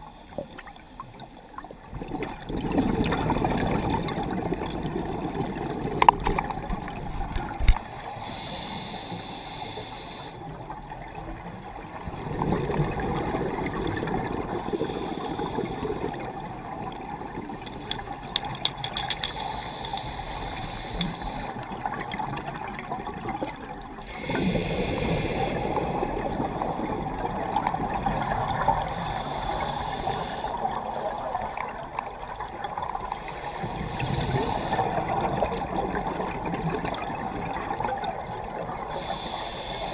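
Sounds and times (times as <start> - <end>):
regulator air hiss: 8.2 - 10.4, 19.3 - 21.6, 28.9 - 31.2, 38.9 - 39.9
small clicks: 16.9 - 20.2, 20.9 - 21.3.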